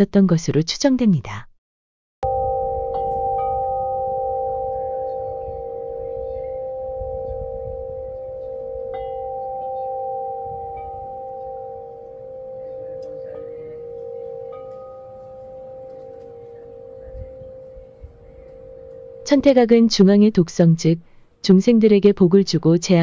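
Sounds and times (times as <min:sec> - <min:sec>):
metal wind chime ringing: 0:02.2 - 0:19.6.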